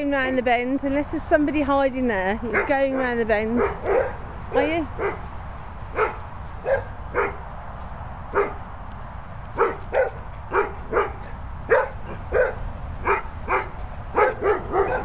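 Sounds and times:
dog barking: 2.5s - 5.3s, 5.9s - 7.4s, 8.3s - 8.6s, 9.6s - 15.0s.

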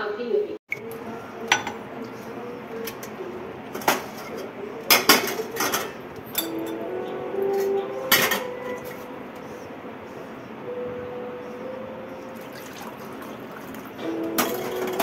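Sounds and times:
pots and utensils clinking: 0.7s - 9.1s, 12.6s - 15.0s.

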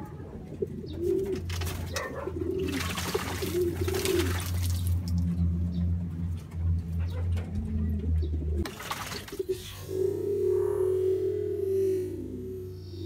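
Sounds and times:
pigeons cooing: 0.0s - 13.0s
steady low hum: 0.2s - 13.0s
wings flapping: 1.0s - 5.0s, 8.6s - 9.7s
water splashing: 2.5s - 5.3s, 8.6s - 9.6s.

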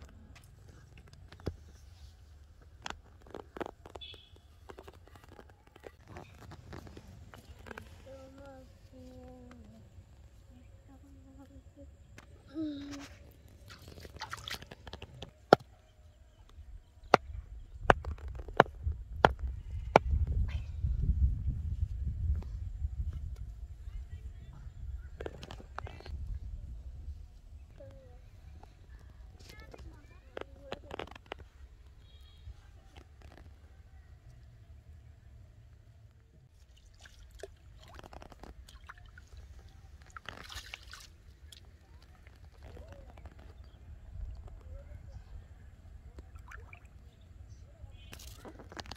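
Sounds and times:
faint splashing in shallow water: 13.0s - 15.3s, 36.5s - 48.9s.

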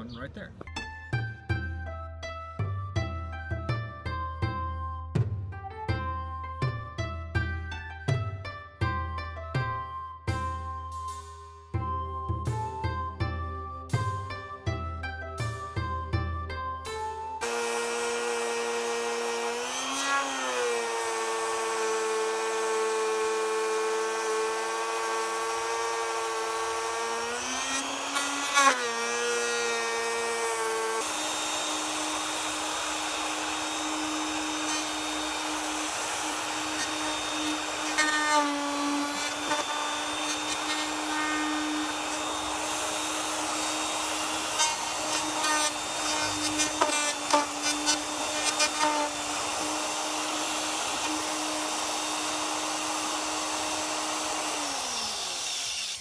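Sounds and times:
router motor whine: 17.4s - 56.0s.

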